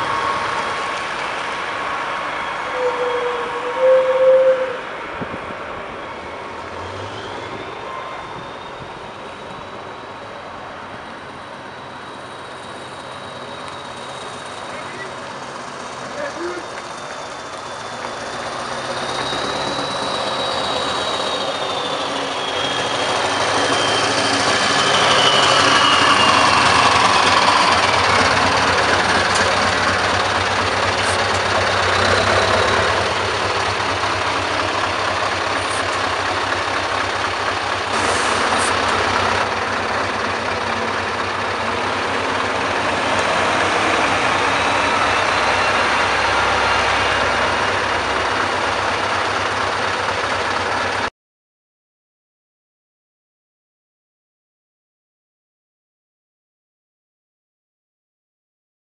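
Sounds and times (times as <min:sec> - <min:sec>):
high whistle falling in pitch: 0:02.6 - 0:04.9, 0:19.2 - 0:28.4
truck engine running at low revs: 0:14.7 - 0:51.1.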